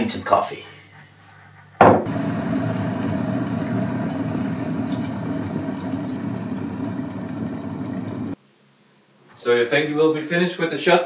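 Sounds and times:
water boiling in kettle: 2.1 - 8.4.

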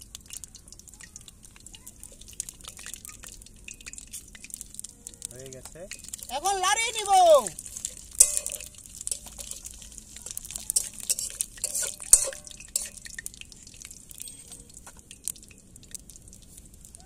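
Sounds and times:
spices sizzling and popping in oil: 0.0 - 17.0
metal spatula scraping a pan: 7.6 - 15.0.

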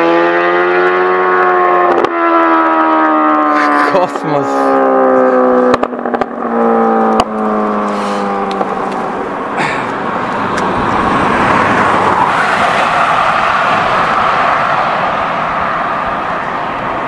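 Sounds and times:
wind and road noise: 0.0 - 17.0
motorcycle engine running: 3.5 - 11.1.

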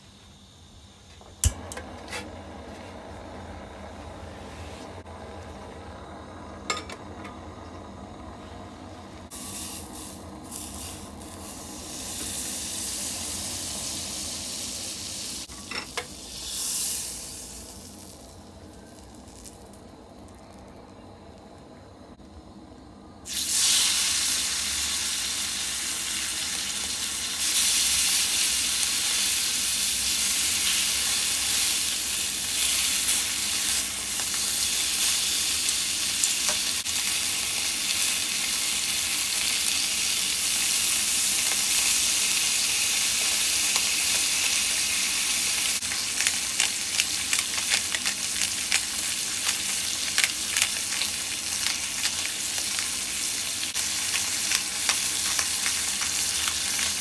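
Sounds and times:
meat sizzling in a skillet: 9.3 - 19.8, 23.3 - 57.0
oil crackling and popping: 15.4 - 21.5, 23.3 - 57.0.

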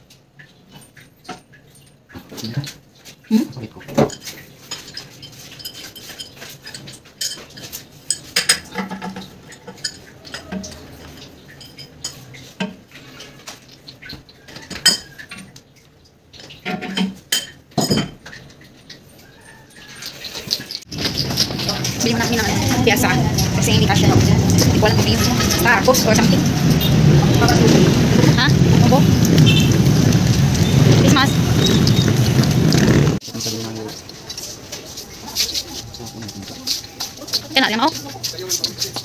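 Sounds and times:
ceramic and metal clinks: 3.9 - 12.5, 16.7 - 18.2.

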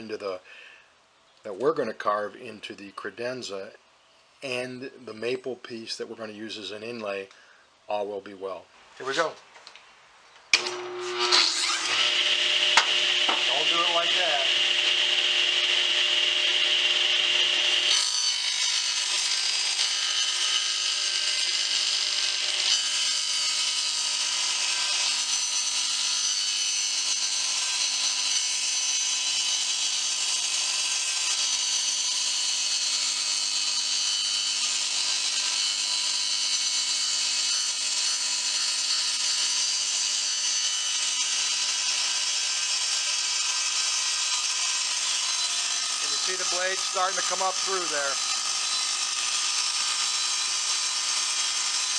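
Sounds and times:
table saw cutting wood: 10.6 - 51.9.

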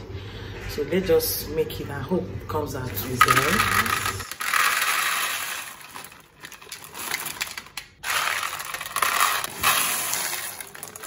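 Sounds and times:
dry beans pouring into plastic bowl: 3.0 - 11.0.

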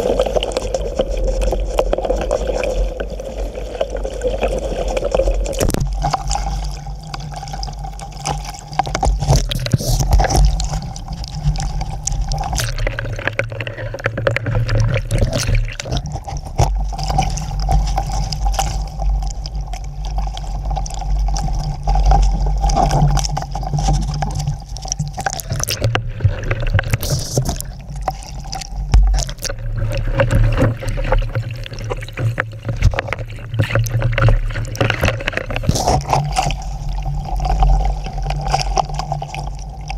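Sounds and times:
waves sloshing and gurgling: 0.0 - 39.9
water knocking against hull: 8.3 - 19.4, 21.3 - 39.5.

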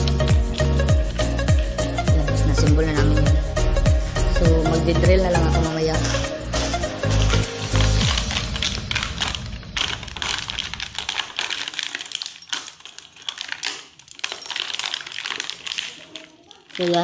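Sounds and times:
plastic crinkling: 0.0 - 2.7, 5.4 - 17.0
small metal fittings rattling: 11.0 - 17.0.

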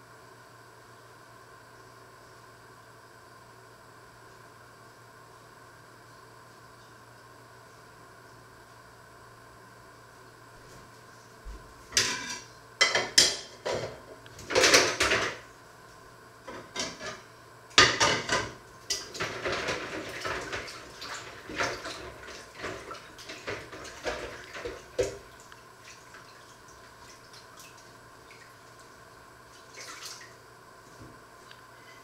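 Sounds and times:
dishes and pots clattering: 12.0 - 15.4, 16.5 - 17.2, 17.8 - 20.8.

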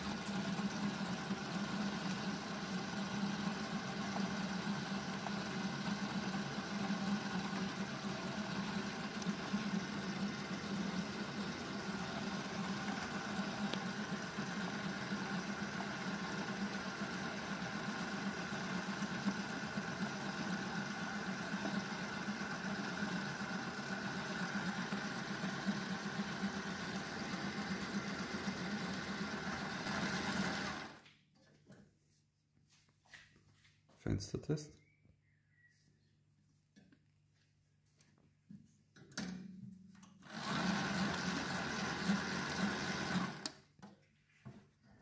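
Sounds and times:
dough mixer motor humming: 0.0 - 31.0, 40.2 - 43.6.

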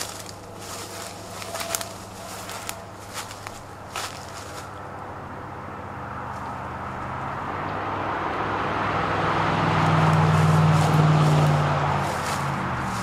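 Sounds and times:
vehicle passing by: 0.0 - 13.0.

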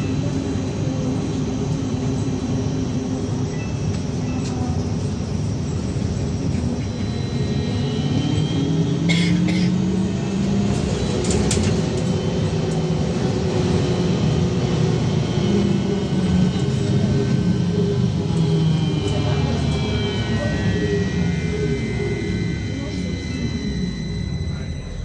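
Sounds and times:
road and running noise: 3.8 - 22.8
electric drive whine: 5.2 - 9.1, 9.8 - 25.0.

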